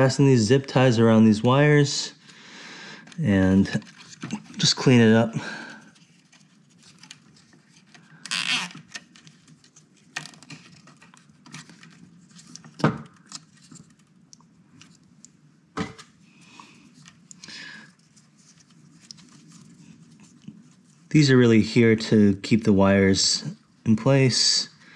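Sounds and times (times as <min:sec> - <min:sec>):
rustling and scraping: 0:03.1 - 0:15.2, 0:15.8 - 0:21.1.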